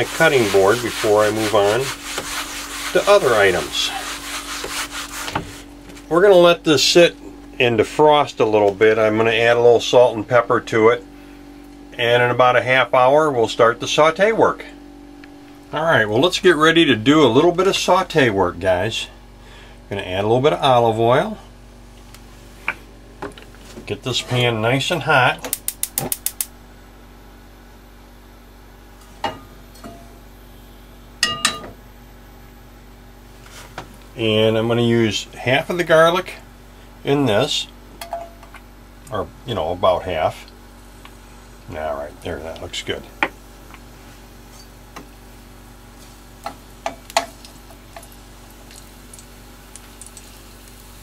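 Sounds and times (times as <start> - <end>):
low hum: 0.0 - 25.0.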